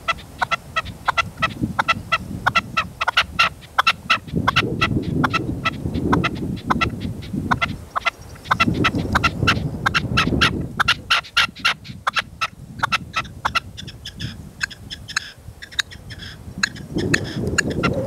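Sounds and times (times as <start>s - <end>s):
partridges calling: 0.0s - 18.0s
wind rumble on microphone: 0.0s - 18.0s.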